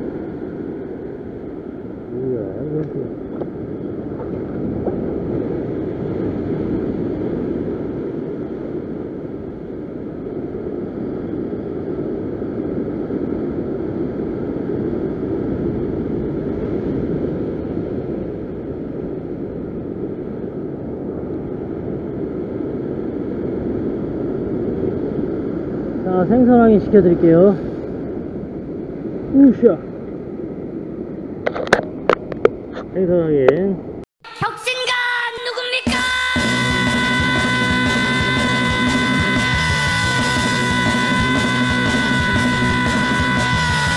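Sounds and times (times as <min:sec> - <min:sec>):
ocean surf breaking on rocks: 0:00.0 - 0:31.4
wind buffeting microphone: 0:00.0 - 0:34.1.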